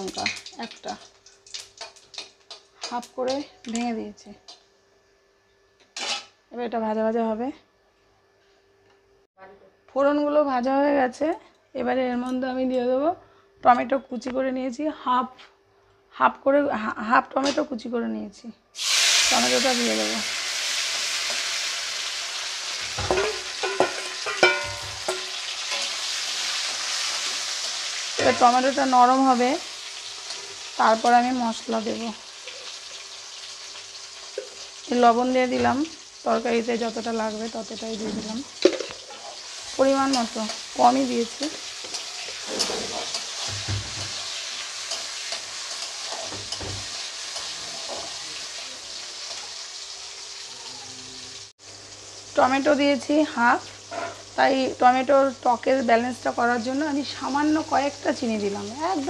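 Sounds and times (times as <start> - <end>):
tomato sizzling in hot oil: 0.0 - 4.7, 18.8 - 59.0
metal spatula scraping pan: 6.0 - 6.3, 23.0 - 26.3, 41.6 - 48.2.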